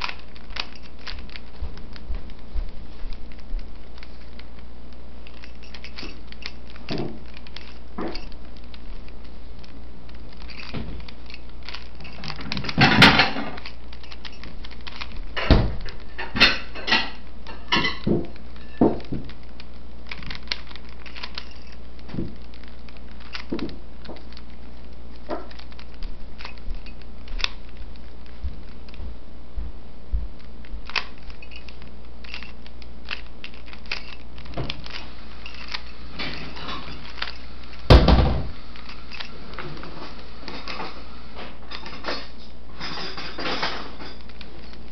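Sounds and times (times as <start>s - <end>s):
puzzle cube clicking as turned: 0.0s - 16.2s, 18.2s - 29.0s, 30.4s - 37.9s
steady low hum: 0.0s - 44.9s.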